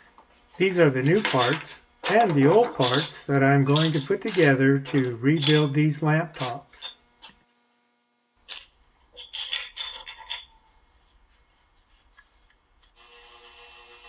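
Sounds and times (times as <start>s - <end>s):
steady hum: 0.0s - 9.1s
metal parts clinking on workbench: 1.0s - 7.4s, 8.5s - 10.6s.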